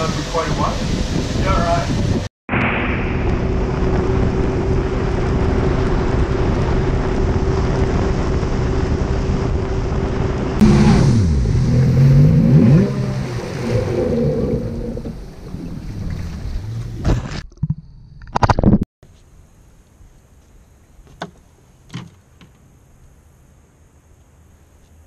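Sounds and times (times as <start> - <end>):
water rushing: 0.0 - 17.2
wind on microphone: 0.0 - 17.4
jet ski engine: 3.4 - 17.2.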